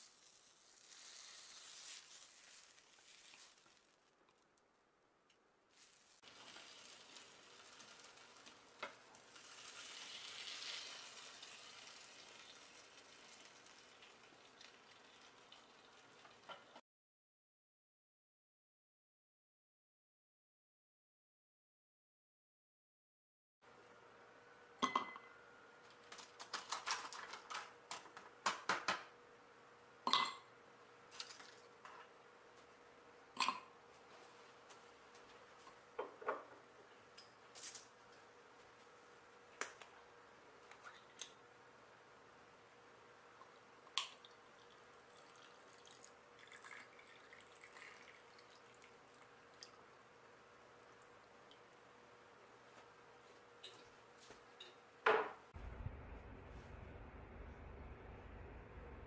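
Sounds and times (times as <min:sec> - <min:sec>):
tea trickling over ice: 0:00.0 - 0:04.6, 0:05.7 - 0:16.7, 0:31.1 - 0:31.8, 0:43.5 - 0:51.9
glass clink: 0:24.8 - 0:25.4, 0:30.1 - 0:30.5.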